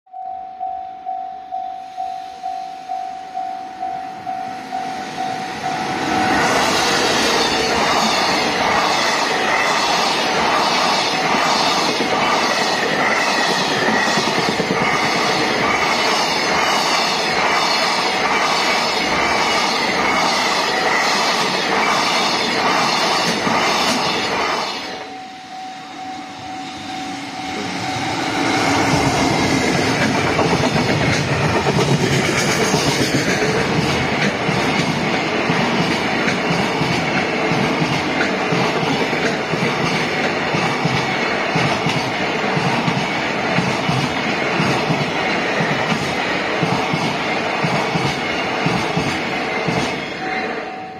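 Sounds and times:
freight train wheels clicking on rails: 4.6s - 25.2s, 27.4s - 50.2s.

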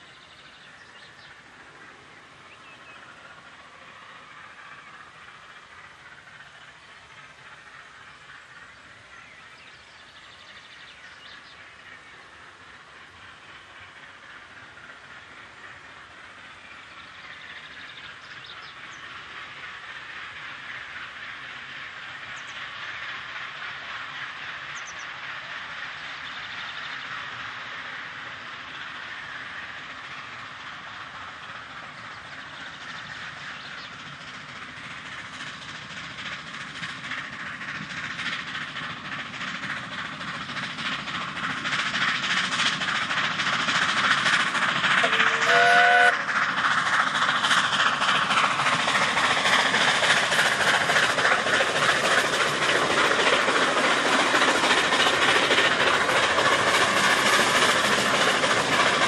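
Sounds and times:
steam locomotive exhaust beats: 0.0s - 59.0s
steam whistle blast: 45.0s - 46.2s.

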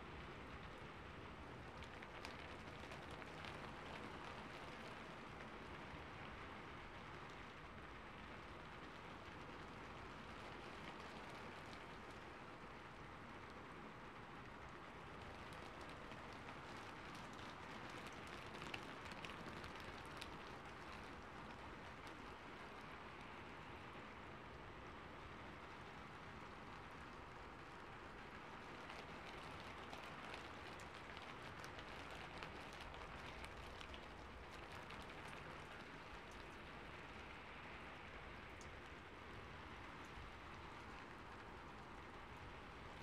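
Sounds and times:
raindrops ticking: 0.5s - 43.0s.

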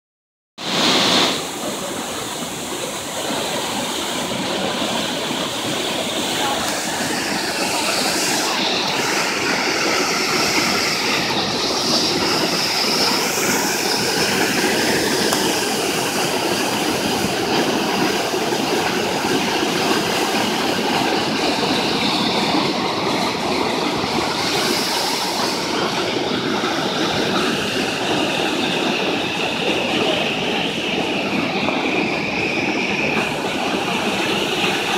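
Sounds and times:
waterfall rushing: 0.6s - 34.9s.

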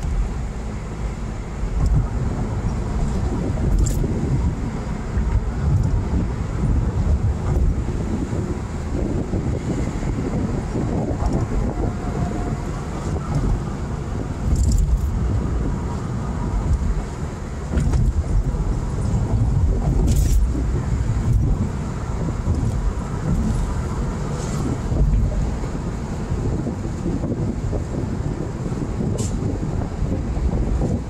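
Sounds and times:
engine and road rumble: 0.0s - 31.0s
wind: 0.0s - 31.0s.

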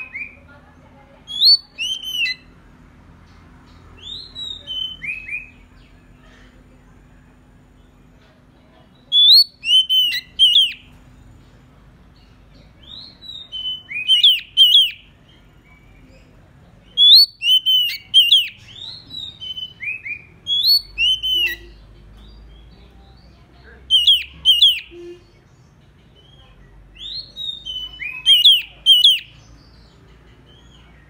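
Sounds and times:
bird singing whistled phrases: 1.3s - 2.5s, 4.0s - 5.7s, 9.1s - 10.9s, 12.8s - 15.1s, 17.0s - 21.8s, 23.9s - 25.2s, 27.0s - 29.4s.

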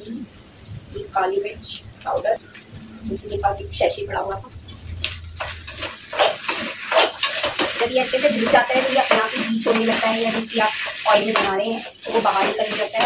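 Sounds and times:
food frying: 0.0s - 13.0s
metal spatula scraping a pan: 5.1s - 13.0s.

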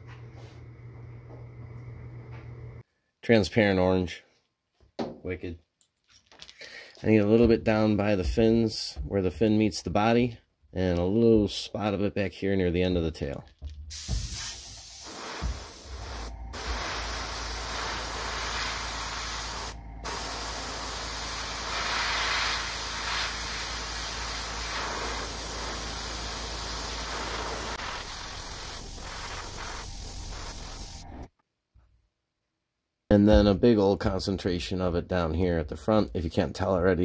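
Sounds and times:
airbrush spraying hiss: 13.9s - 31.3s.

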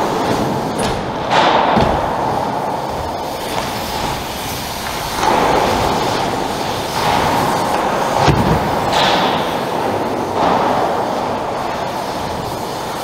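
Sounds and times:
bike landing thud: 0.0s - 11.3s
bike tyres rumbling on concrete: 0.0s - 13.0s.

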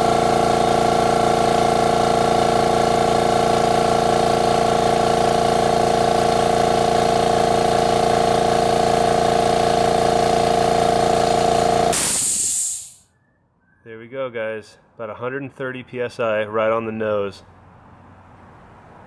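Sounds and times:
air compressor running: 0.0s - 13.0s
motor winding down: 0.0s - 13.0s
burst of air hiss: 11.9s - 13.1s.

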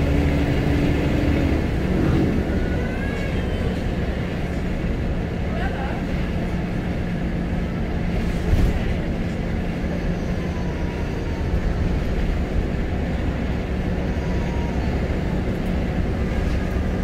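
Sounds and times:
bus diesel engine drone: 0.0s - 17.0s
road noise: 0.0s - 17.0s.

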